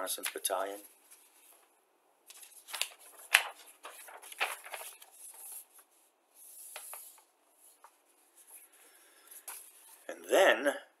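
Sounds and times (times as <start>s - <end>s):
paper rustling: 2.3s - 10.1s.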